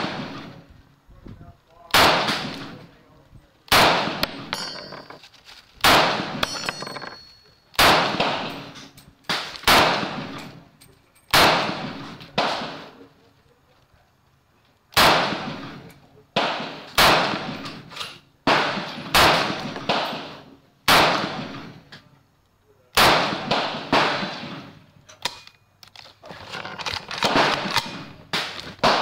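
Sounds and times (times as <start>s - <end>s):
rifle shots echoing: 0.0s - 0.7s, 1.9s - 2.9s, 3.7s - 5.2s, 5.8s - 10.7s, 11.3s - 13.1s, 14.9s - 21.9s, 23.0s - 24.9s, 26.9s - 29.0s.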